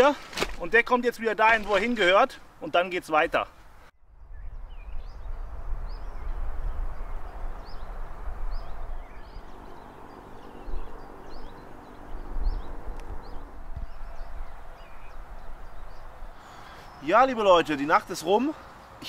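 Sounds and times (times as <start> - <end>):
small birds chirping: 4.2 - 19.0.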